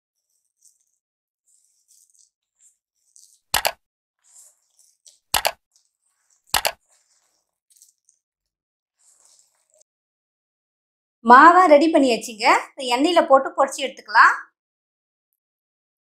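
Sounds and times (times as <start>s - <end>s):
wet batter squishing: 0.2s - 8.3s, 9.0s - 9.9s
mouse double click: 3.6s - 3.8s, 5.4s - 5.6s, 6.6s - 6.8s.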